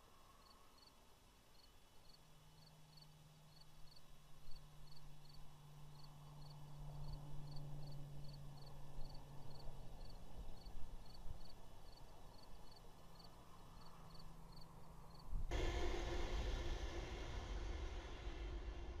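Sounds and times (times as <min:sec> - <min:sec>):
steady low hum: 0:04.2 - 0:19.0.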